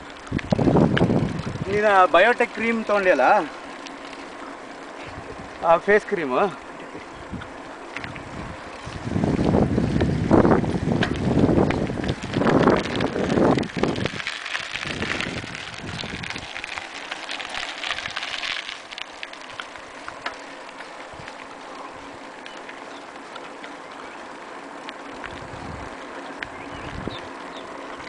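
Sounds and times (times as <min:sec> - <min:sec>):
wind buffeting microphone: 0:00.0 - 0:02.9, 0:05.0 - 0:05.6, 0:06.9 - 0:16.8, 0:21.0 - 0:21.4, 0:25.2 - 0:28.0
bicycle tyres rolling on tarmac: 0:00.0 - 0:28.0.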